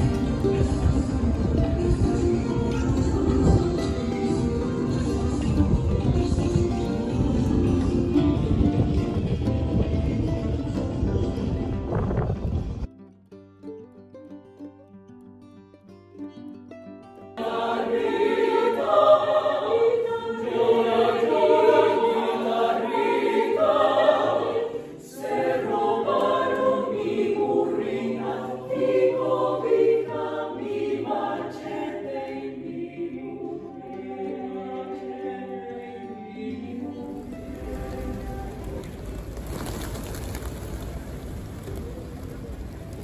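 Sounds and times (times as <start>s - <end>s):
mixed choir singing a cappella: 17.4s - 39.3s.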